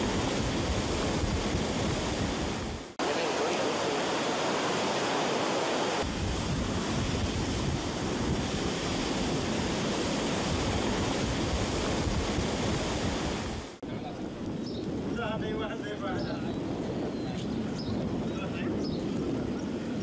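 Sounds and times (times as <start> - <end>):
floodwater rushing through spillway: 0.0 - 14.4.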